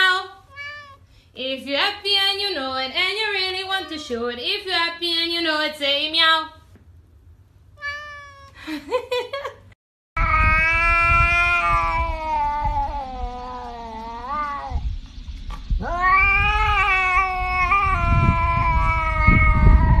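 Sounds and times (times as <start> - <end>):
cat yowling: 0.4 - 1.1, 7.8 - 8.6, 10.2 - 14.8, 15.8 - 20.0.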